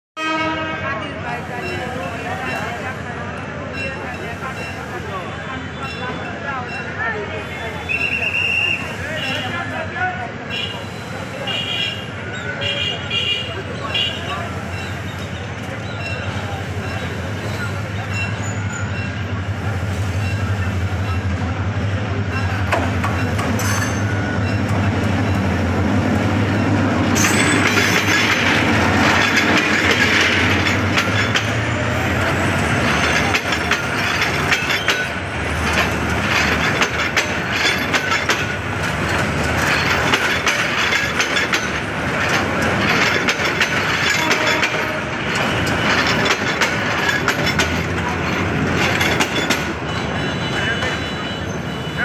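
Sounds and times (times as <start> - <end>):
diesel locomotive engine drone: 0.2 - 52.0
train wheels clickety-clack: 22.4 - 51.4.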